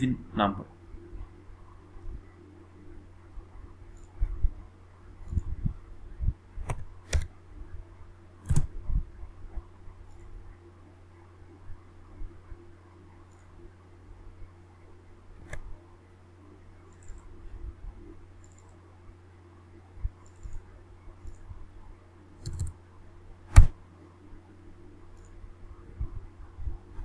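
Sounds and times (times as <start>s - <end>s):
faint low hum: 0.0s - 27.0s
keyboard keystrokes: 6.6s - 7.3s, 22.4s - 22.8s
mouse clicks: 15.4s - 15.7s, 22.4s - 22.8s.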